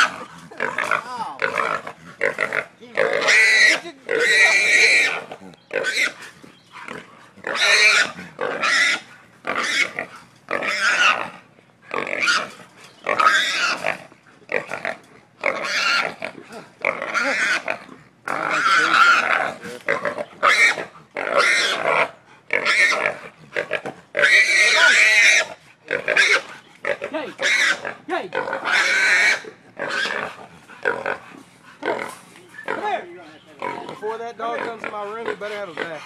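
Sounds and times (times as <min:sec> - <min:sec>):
hog squealing: 0:00.9 - 0:11.3, 0:12.0 - 0:12.5, 0:13.1 - 0:14.0, 0:15.5 - 0:16.2, 0:18.4 - 0:23.1, 0:24.2 - 0:31.2, 0:31.8 - 0:36.0.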